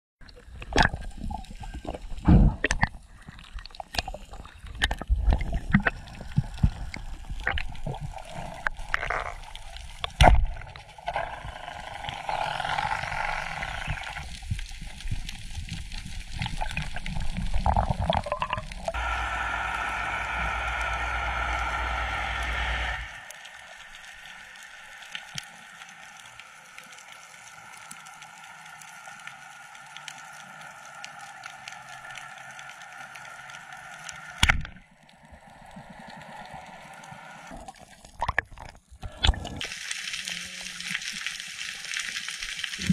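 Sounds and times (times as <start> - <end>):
underwater bubbling and gurgling: 0.2 - 42.9
steady hiss: 18.9 - 34.4.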